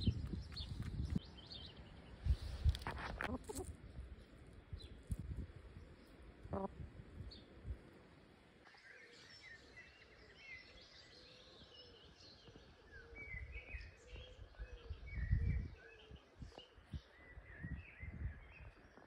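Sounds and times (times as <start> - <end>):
low microphone rumble: 0.0 - 7.9, 13.2 - 15.8
small birds chirping: 0.0 - 19.0.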